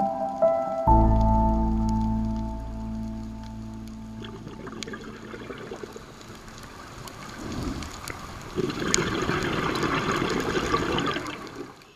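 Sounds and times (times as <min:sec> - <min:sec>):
bubbling rushing water: 0:04.0 - 0:11.9.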